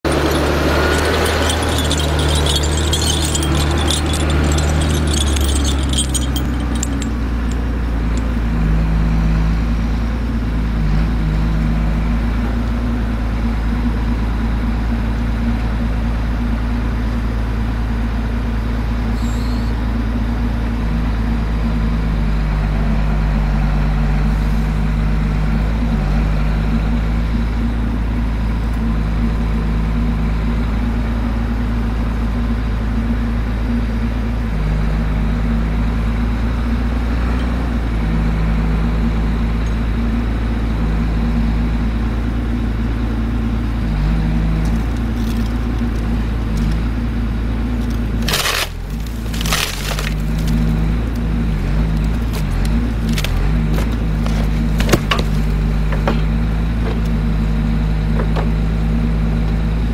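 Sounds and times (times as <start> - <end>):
crackling rattle: 0.0 - 8.4, 47.8 - 51.2
diesel engine running: 0.0 - 59.9.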